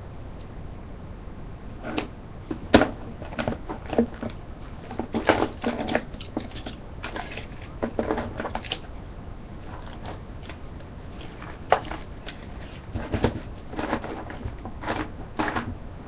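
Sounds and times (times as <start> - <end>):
rummaging through objects: 1.8 - 8.9, 9.6 - 15.8.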